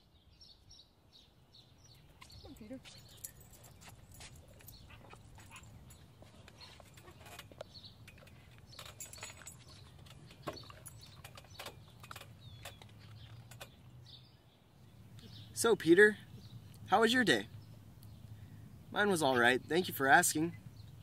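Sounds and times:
dog clicks and rustles: 0:02.2 - 0:13.8.

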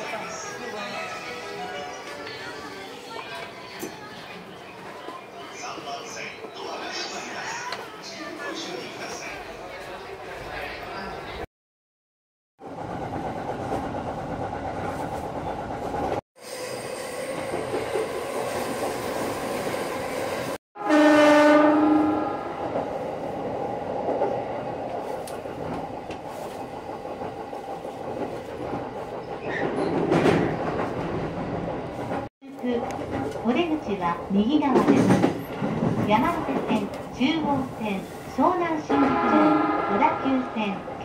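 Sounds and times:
electric train rumbling: 0:12.6 - 0:41.0
train horn: 0:20.8 - 0:22.5, 0:38.9 - 0:40.6.

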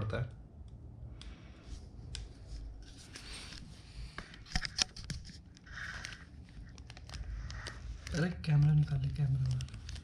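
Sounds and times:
scratchy rustling of sticker peeling: 0:02.2 - 0:10.0.

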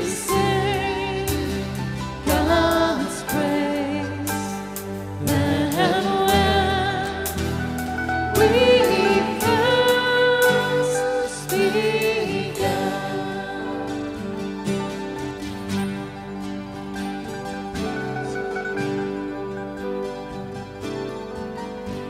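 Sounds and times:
keyboard: 0:00.0 - 0:22.0
strummed acoustic guitar: 0:00.0 - 0:22.0.

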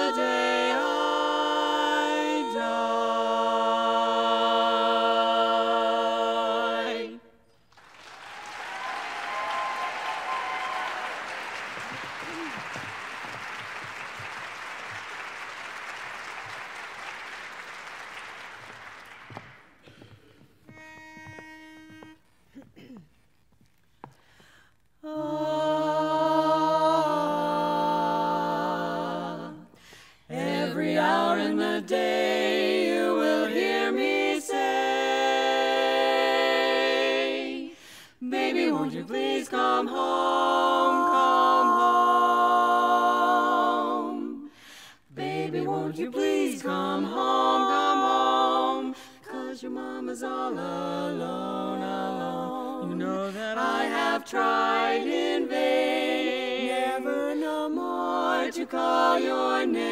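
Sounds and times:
women singing in close harmony: 0:00.0 - 0:07.4, 0:25.0 - 0:59.9.

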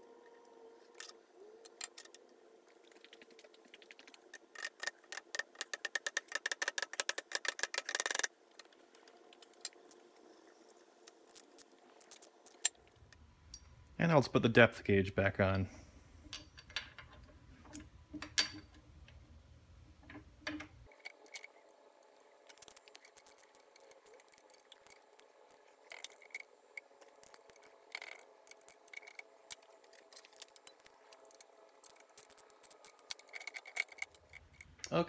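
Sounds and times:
small metal clicks and clinks: 0:02.9 - 0:13.8, 0:16.2 - 0:18.8, 0:22.4 - 0:35.0.

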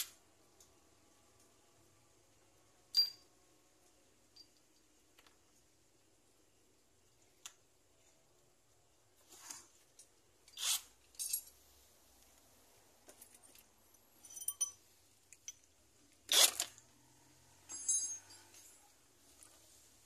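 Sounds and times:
metallic clinks of tools: 0:02.9 - 0:03.3, 0:04.3 - 0:04.9, 0:10.0 - 0:11.6, 0:13.1 - 0:15.7, 0:17.6 - 0:18.9
metallic jingle: 0:02.9 - 0:03.3, 0:14.1 - 0:14.9, 0:17.6 - 0:18.9
tools scraping: 0:09.2 - 0:11.4, 0:16.3 - 0:16.8.

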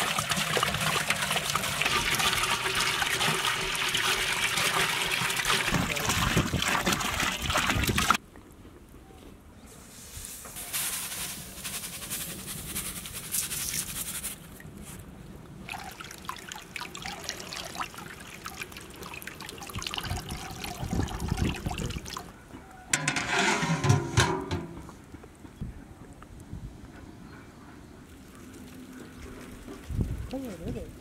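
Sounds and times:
water bubbling in a pot: 0:00.0 - 0:08.2, 0:15.6 - 0:22.3
metal lid clattering onto pot: 0:23.0 - 0:25.0.

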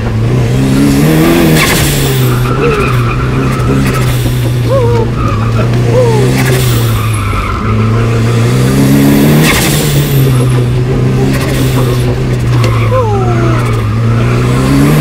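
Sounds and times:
car engine revving: 0:00.0 - 0:15.0
tyre squeal: 0:01.5 - 0:08.4.

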